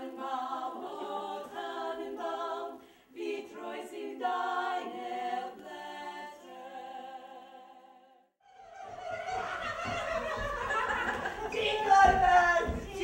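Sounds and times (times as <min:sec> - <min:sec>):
women singing in harmony: 0:00.0 - 0:08.1, 0:11.5 - 0:13.0.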